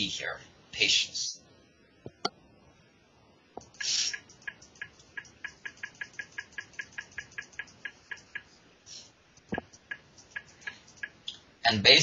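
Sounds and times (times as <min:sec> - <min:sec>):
computer clicks: 0:03.6 - 0:08.6, 0:09.4 - 0:11.4
short hiss: 0:03.7 - 0:04.2.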